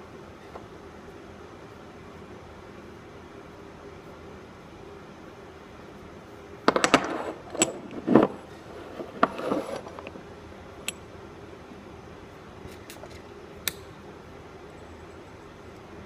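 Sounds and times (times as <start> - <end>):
room hum: 0.0 - 16.0
metal parts clinking and clunking: 6.7 - 10.1.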